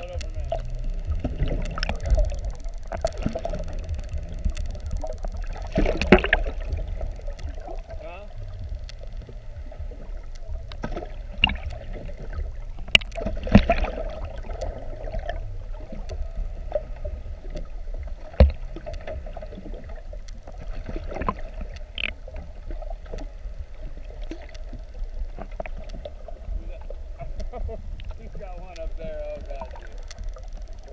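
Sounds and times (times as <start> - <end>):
sharp clicks and knocks: 0.0 - 16.9, 18.3 - 22.5
constant hum: 0.0 - 30.9
underwater rumble of moving water: 0.0 - 30.9.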